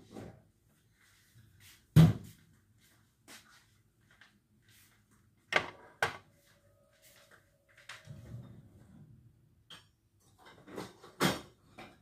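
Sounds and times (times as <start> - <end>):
kitchen items knocking: 5.5 - 6.2.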